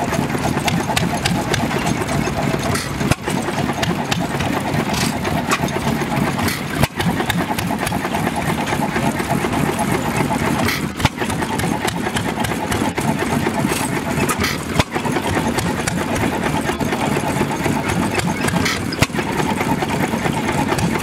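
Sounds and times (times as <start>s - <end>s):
sharp engine knocks: 0.0s - 21.0s
stationary engine running: 0.0s - 21.0s.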